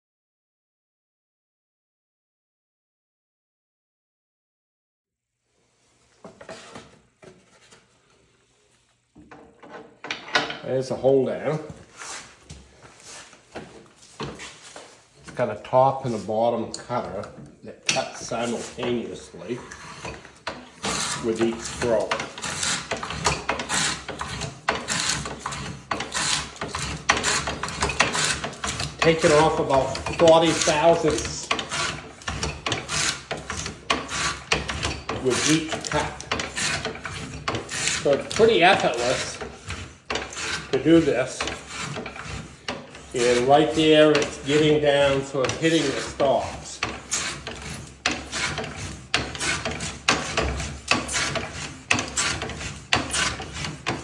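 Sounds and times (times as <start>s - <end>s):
mortiser cutters rasping wood: 15.3s - 54.0s.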